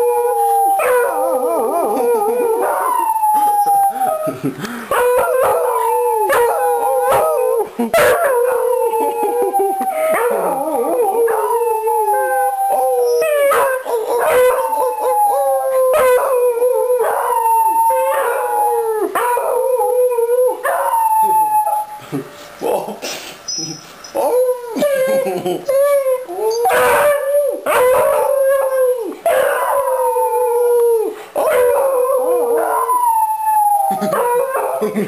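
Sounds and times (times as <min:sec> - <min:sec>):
dogs howling in chorus: 0:00.0 - 0:21.9, 0:26.4 - 0:34.8.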